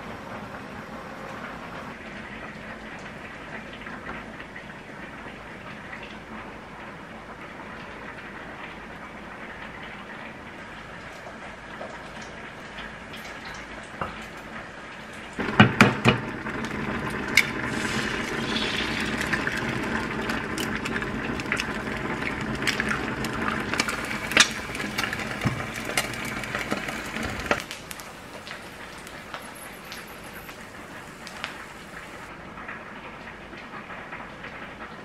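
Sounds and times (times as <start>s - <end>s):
egg sizzling in hot oil: 15.3s - 32.3s.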